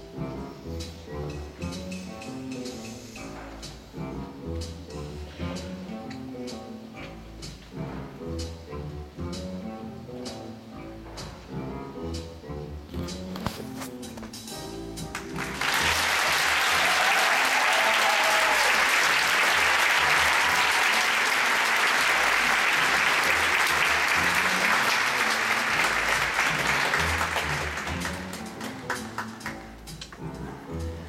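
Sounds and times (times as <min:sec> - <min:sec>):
audience applause and cheering: 0:15.1 - 0:30.3
band playing instrumental music: 0:22.2 - 0:31.0.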